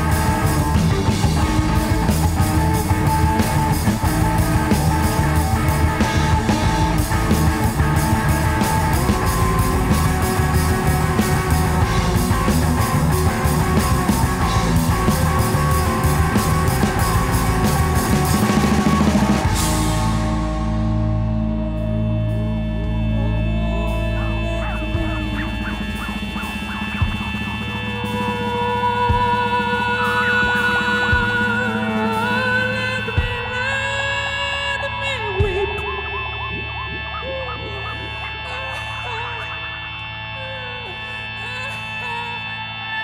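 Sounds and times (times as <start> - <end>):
drum kit with cymbals: 0.0 - 21.0, 23.8 - 32.4
double bass: 0.0 - 26.3
electric guitar: 0.0 - 43.0.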